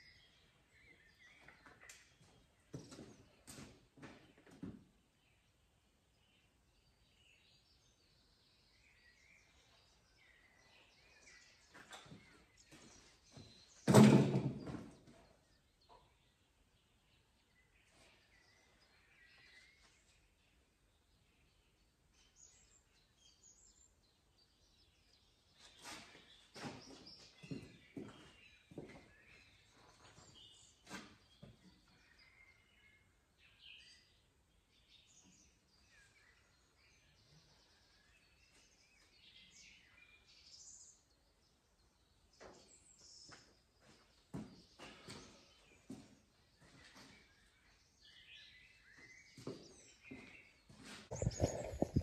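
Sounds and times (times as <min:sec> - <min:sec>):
birds chirping faintly: 0:00.0 - 0:52.0
loud clunk: 0:13.9 - 0:14.8
faint bird chirps and whistles: 0:46.6 - 0:52.0.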